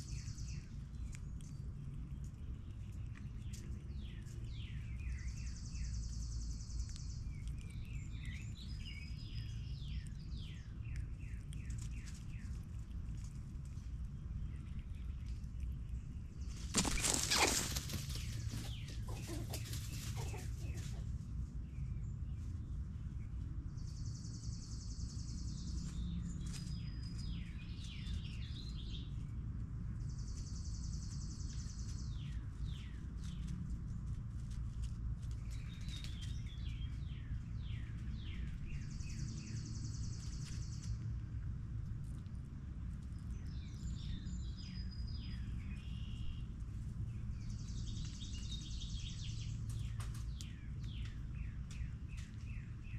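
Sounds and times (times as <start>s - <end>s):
songbirds chirping: 0.0s - 52.9s
steady low rumble: 0.0s - 52.9s.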